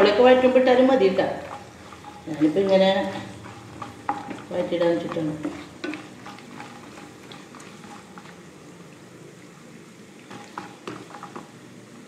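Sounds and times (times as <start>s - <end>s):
bubbling sizzle of frying: 0.0s - 12.0s
wooden spatula against pan: 1.0s - 8.5s, 10.2s - 11.6s.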